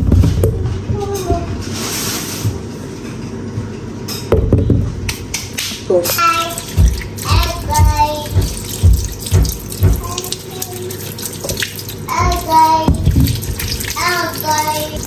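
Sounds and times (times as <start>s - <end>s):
tap water running into sink: 6.2s - 15.0s.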